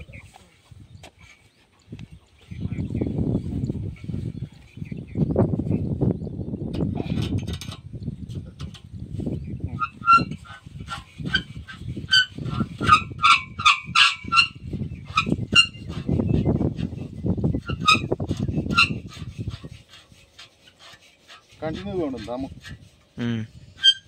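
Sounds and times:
low thuds and rubbing of pipe: 2.9 - 24.0
metal lever squeaking: 9.7 - 16.5, 17.6 - 19.2, 23.8 - 24.0.

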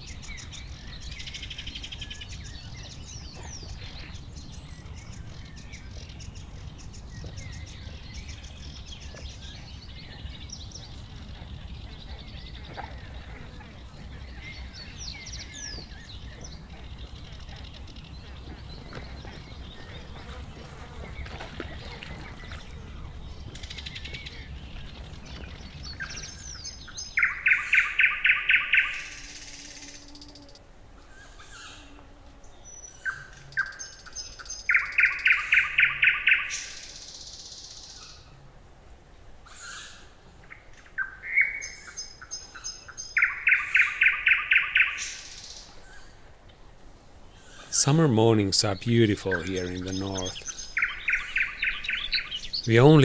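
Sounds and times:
songbird singing: 0.0 - 38.3, 39.4 - 46.2, 47.3 - 53.0
faint bird calls: 27.2 - 32.0, 33.0 - 36.6.

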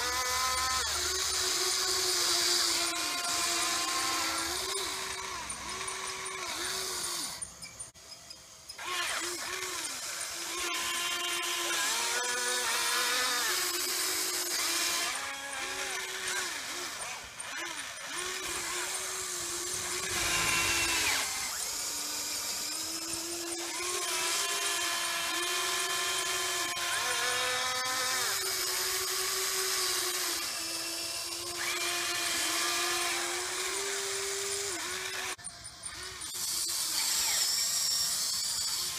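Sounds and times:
electric motors whining: 0.0 - 38.9.

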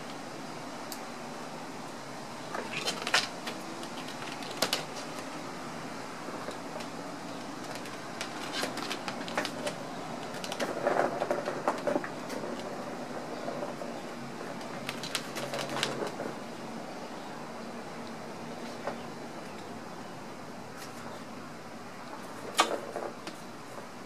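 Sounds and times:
background hiss: 0.0 - 24.0
kitten claws scratching post: 2.5 - 5.4, 6.3 - 16.3.

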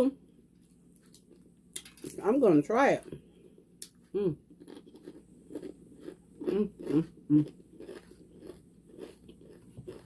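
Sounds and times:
crunchy chewing: 3.8 - 10.0
person humming: 4.1 - 4.4, 6.5 - 7.5.

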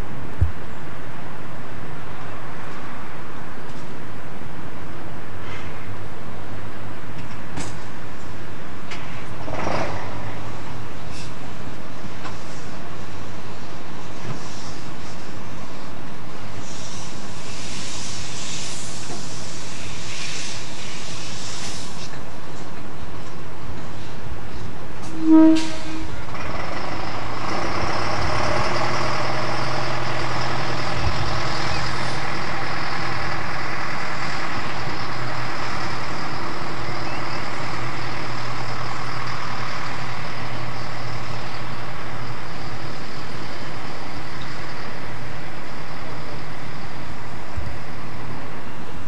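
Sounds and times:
diesel locomotive engine running: 0.0 - 49.0
locomotive horn toot: 25.0 - 26.3.

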